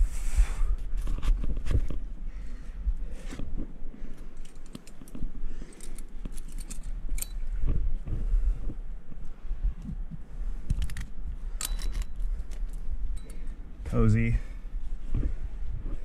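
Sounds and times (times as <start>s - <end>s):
climbing gear clinking: 4.1s - 7.8s, 10.6s - 13.6s.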